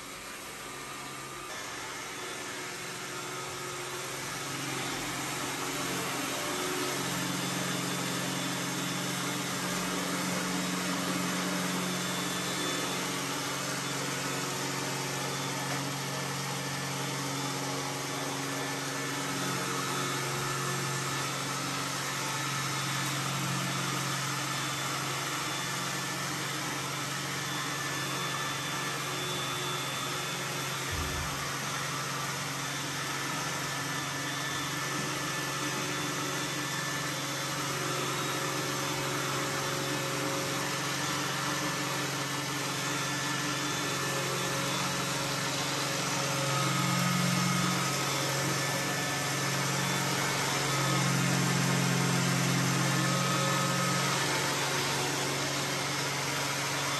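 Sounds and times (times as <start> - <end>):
robot vacuum whirring: 0.0 - 56.9.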